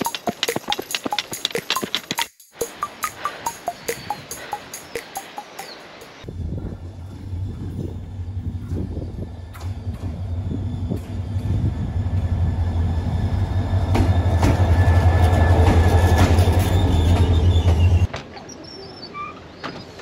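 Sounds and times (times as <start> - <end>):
wheel clacks over rails: 0.0 - 5.6, 13.7 - 18.1
diesel locomotive engine drone: 2.6 - 18.1
high brake squeal: 8.4 - 20.0.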